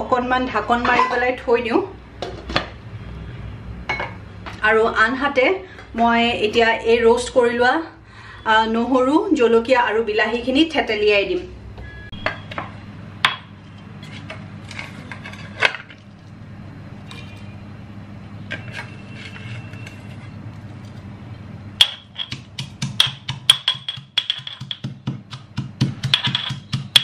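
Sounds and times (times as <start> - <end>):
metal pestle pounding in mortar: 21.8 - 27.0.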